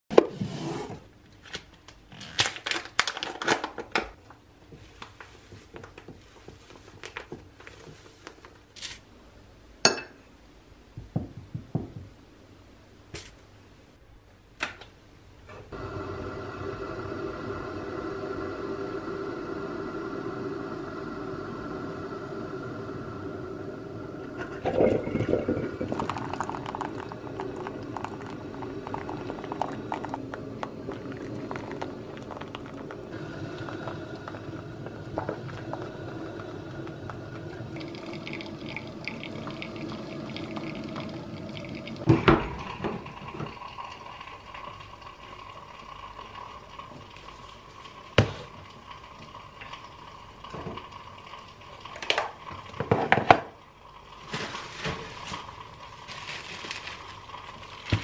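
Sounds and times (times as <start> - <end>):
coffee trickling into carafe: 24.2 - 58.0
water bubbling and gurgling: 24.3 - 44.0.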